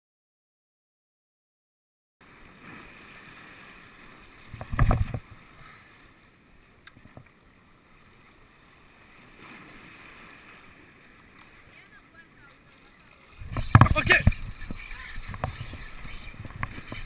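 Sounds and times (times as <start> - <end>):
choppy water along shore: 2.2 - 17.0
wind on microphone: 4.5 - 5.4, 13.3 - 17.0.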